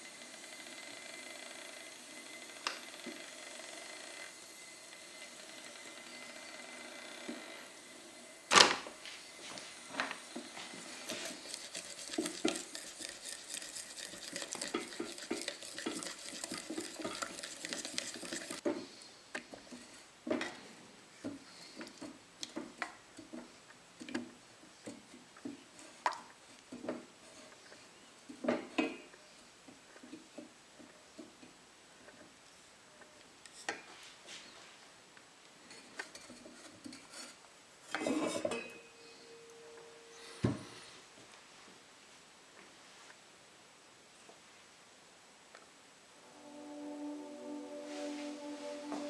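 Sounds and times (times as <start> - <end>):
faint hiss: 23.0 - 49.0.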